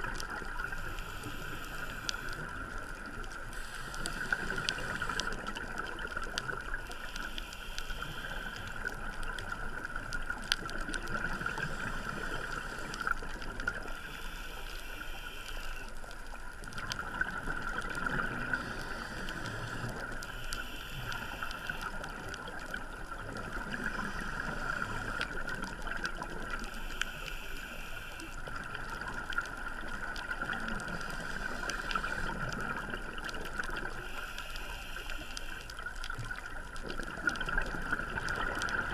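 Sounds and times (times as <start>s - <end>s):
gurgling exhaled bubbles: 0.0s - 6.9s, 8.4s - 14.0s, 16.6s - 20.2s, 21.1s - 26.8s, 28.2s - 34.2s, 35.8s - 38.9s
regulator inhale hiss: 0.6s - 2.8s, 3.4s - 5.5s, 6.8s - 8.9s, 11.4s - 15.9s, 18.3s - 22.1s, 23.6s - 25.5s, 26.6s - 28.5s, 30.8s - 32.8s, 34.0s - 35.7s.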